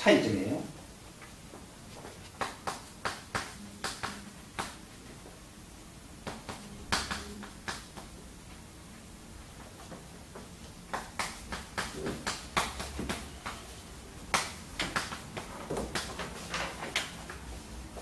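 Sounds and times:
chalk tapping and scratching on board: 2.0s - 4.8s.

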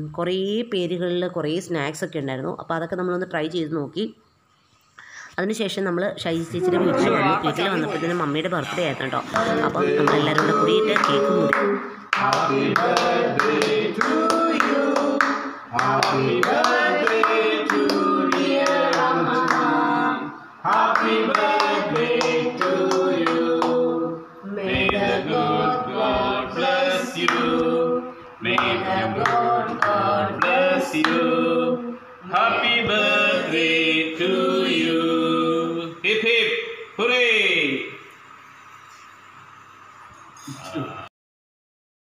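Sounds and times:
people singing a birthday song: 6.4s - 36.4s
rhythmic hand-clapping: 9.2s - 24.1s, 24.7s - 31.4s.

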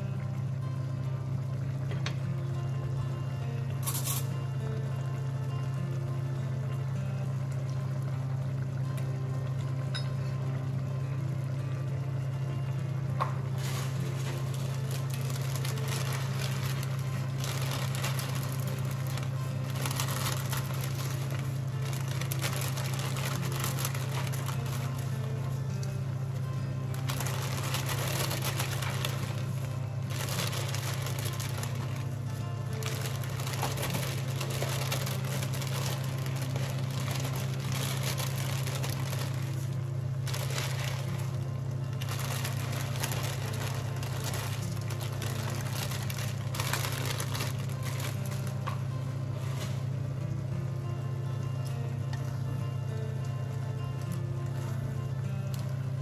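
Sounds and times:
steady low hum: 0.0s - 56.0s
dry noodles crackling: 13.4s - 50.5s, 53.9s - 56.0s
plastic bag crinkling: 13.6s - 25.6s, 26.9s - 49.9s.

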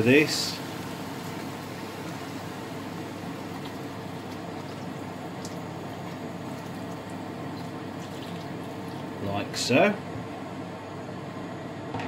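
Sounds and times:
liquid pouring and splashing into pot: 0.6s - 9.2s.

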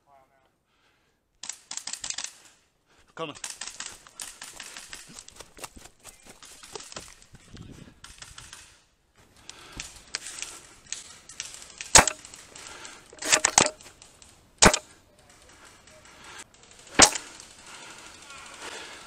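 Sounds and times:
airsoft guns firing: 11.4s - 13.9s, 14.6s - 15.0s, 16.8s - 18.8s.

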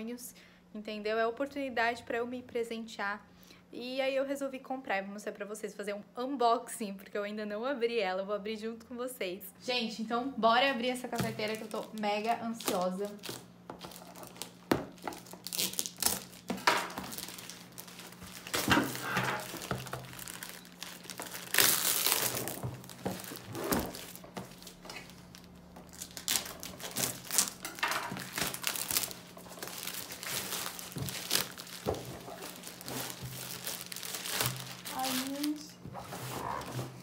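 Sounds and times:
plastic bag crinkling and tearing: 11.2s - 36.7s.

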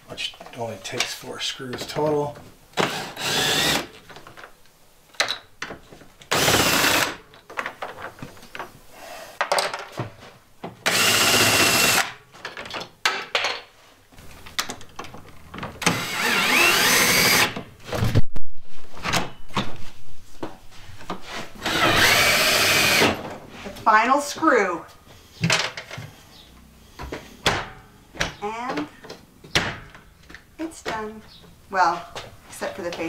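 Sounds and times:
cordless drill driving screws: 2.8s - 3.9s, 6.3s - 7.2s, 10.8s - 12.1s, 15.8s - 17.6s, 21.6s - 23.2s.

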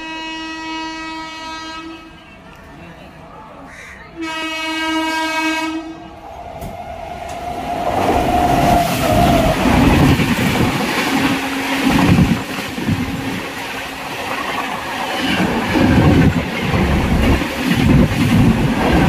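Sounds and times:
train horn blast: 0.0s - 2.3s, 4.2s - 6.3s
train wheels clattering over rails: 6.3s - 19.0s.

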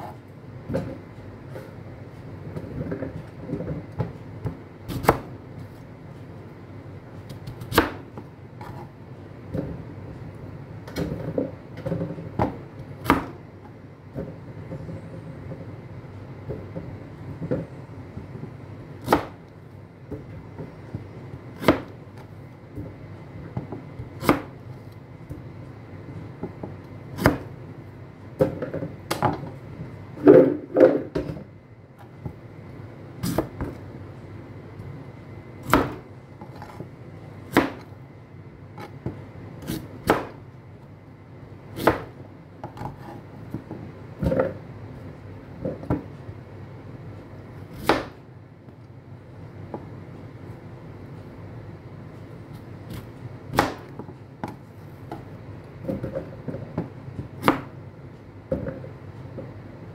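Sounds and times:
knife chopping on cutting board: 4.0s - 5.3s, 7.4s - 8.9s, 11.9s - 13.4s, 19.0s - 19.4s, 21.6s - 22.0s, 23.6s - 24.6s, 27.2s - 27.5s, 33.2s - 33.8s, 35.6s - 36.8s, 37.5s - 37.9s, 38.8s - 40.4s, 41.8s - 44.6s, 47.7s - 48.2s, 52.9s - 55.2s, 55.8s - 57.8s.

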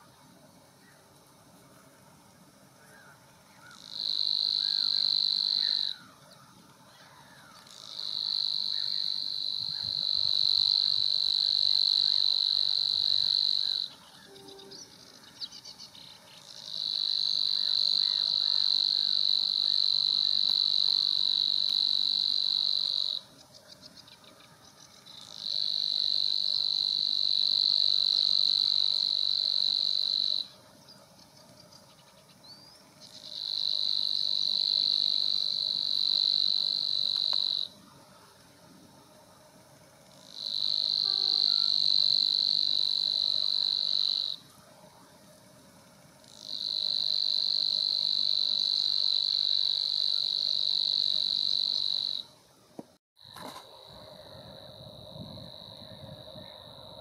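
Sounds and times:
bird singing buzzing reels: 0.0s - 57.0s.

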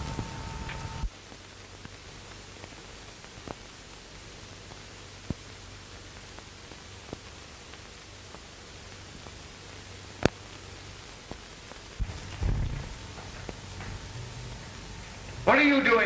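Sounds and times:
film soundtrack hiss: 0.0s - 16.0s.

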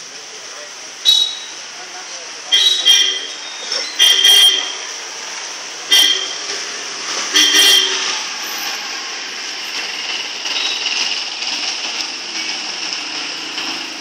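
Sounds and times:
street traffic noise: 0.0s - 14.0s
vehicle horn honking: 1.0s - 1.6s, 2.5s - 4.9s, 5.9s - 6.5s, 7.3s - 8.2s.

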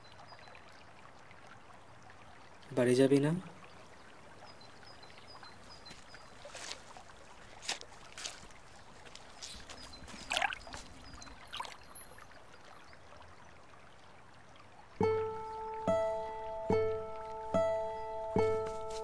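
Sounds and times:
soft water splashes: 0.0s - 17.6s
steady wash of water: 6.2s - 13.5s
faint high bird chirps: 9.4s - 13.0s.

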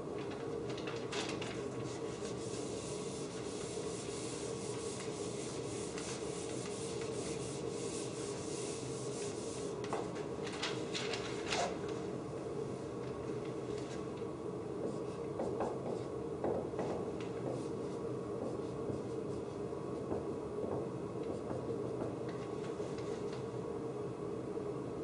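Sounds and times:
eraser wiping a whiteboard: 1.5s - 10.1s, 14.8s - 16.2s, 16.8s - 20.2s, 21.2s - 23.3s.

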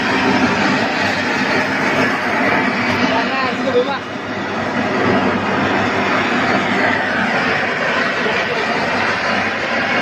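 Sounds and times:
burners roaring with fan: 0.0s - 10.0s.

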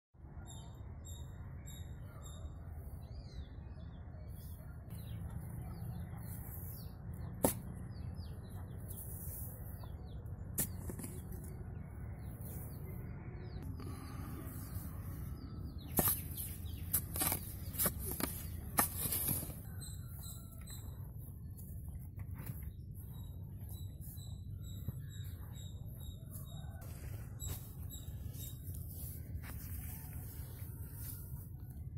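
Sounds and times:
small birds chirping: 0.2s - 31.9s
steady low rumble: 4.9s - 31.9s
digging tool striking earth: 7.3s - 7.9s, 10.5s - 11.5s, 15.9s - 19.6s.

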